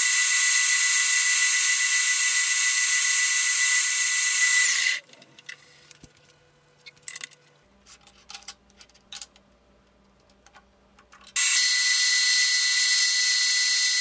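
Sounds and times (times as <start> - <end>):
milling machine cutting steel: 0.0 - 5.0, 11.4 - 14.0.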